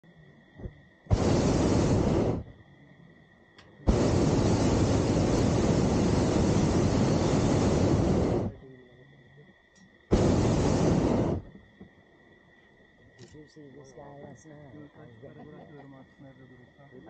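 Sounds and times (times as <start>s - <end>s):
propane burner blasting: 1.1s - 2.5s, 3.8s - 8.6s, 10.1s - 11.6s.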